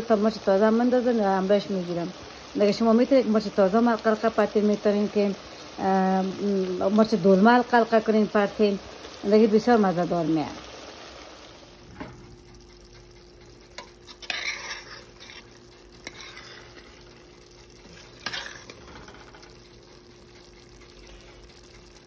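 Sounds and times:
stew sizzling: 0:00.0 - 0:22.0
spoon scraping a metal pot: 0:13.1 - 0:17.1, 0:17.8 - 0:19.6.

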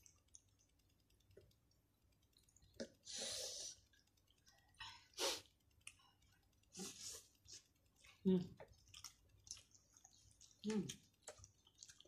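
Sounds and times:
chewing and mouth clicks: 0:00.0 - 0:03.1, 0:03.7 - 0:12.0
breathy hiss: 0:03.0 - 0:03.9, 0:04.8 - 0:05.6.

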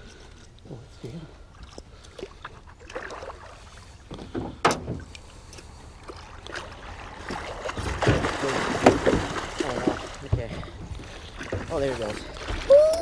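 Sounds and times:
fish thrashing in water: 0:01.7 - 0:03.8, 0:06.0 - 0:12.8.

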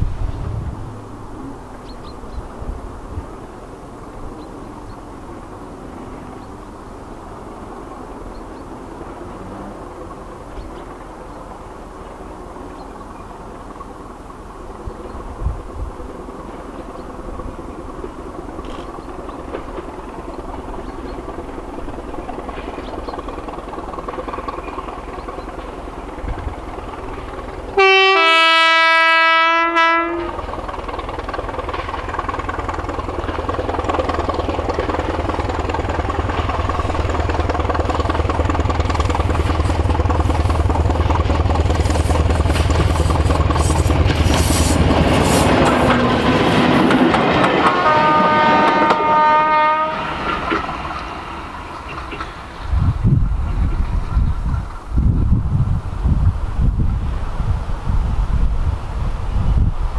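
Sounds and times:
diesel train engine beat: 0:00.0 - 0:59.9
wheels clattering over rail joints: 0:16.4 - 0:27.8, 0:30.2 - 0:49.1, 0:50.0 - 0:55.1
two-tone train horn: 0:27.8 - 0:30.5, 0:47.4 - 0:50.3.

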